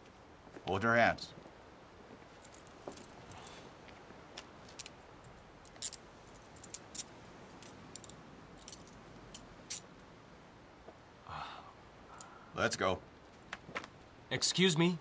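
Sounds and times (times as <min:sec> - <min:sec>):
handcuffs ratcheting clicks: 0:04.7 - 0:09.9.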